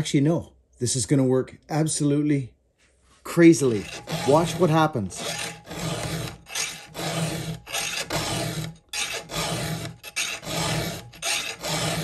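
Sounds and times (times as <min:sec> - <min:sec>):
file rasping on saw chain: 0:03.6 - 0:12.0.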